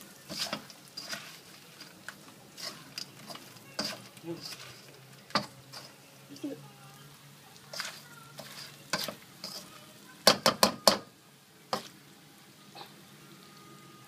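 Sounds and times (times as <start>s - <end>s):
faint sizzle: 0.0s - 14.0s
spatula scraping and knocking on wok: 0.2s - 6.0s, 7.6s - 11.1s, 11.7s - 12.0s.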